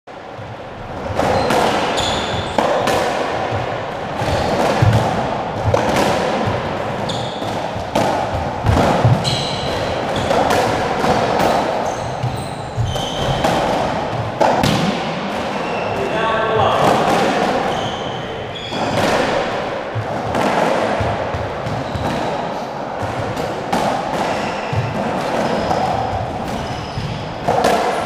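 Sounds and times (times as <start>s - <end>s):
squash ball smacking: 0.4s - 16.0s, 16.7s - 28.0s
shoes squeaking on floor: 1.2s - 2.9s, 4.2s - 5.0s, 6.9s - 7.8s, 8.7s - 13.8s, 15.5s - 16.8s, 17.5s - 19.5s, 21.6s - 22.4s, 24.2s - 27.5s.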